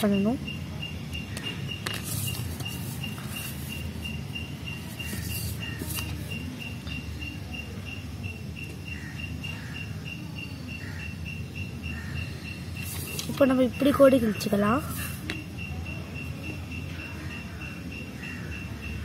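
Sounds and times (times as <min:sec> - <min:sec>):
insect chirping: 0:00.0 - 0:19.0
paper and ruler rustling: 0:01.8 - 0:04.0, 0:04.8 - 0:06.4, 0:12.8 - 0:13.5.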